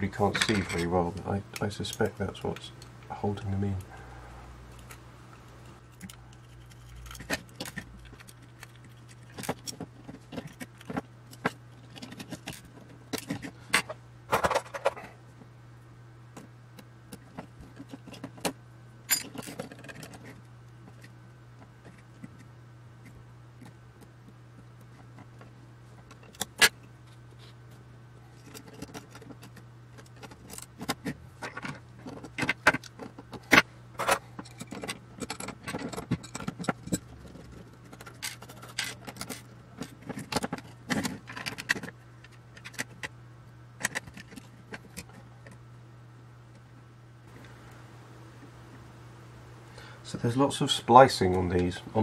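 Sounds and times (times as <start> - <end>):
tools and metal parts clinking: 0.1 - 1.0, 17.8 - 21.1, 28.4 - 41.9.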